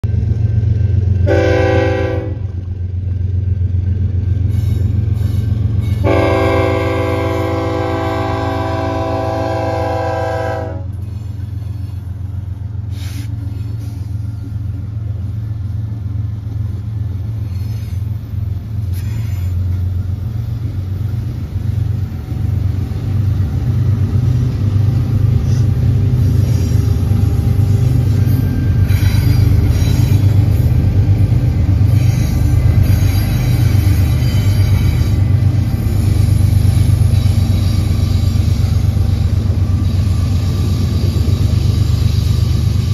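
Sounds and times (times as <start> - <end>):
freight train rumbling past: 0.0 - 42.9
train horn blast: 1.2 - 2.6, 5.9 - 11.0.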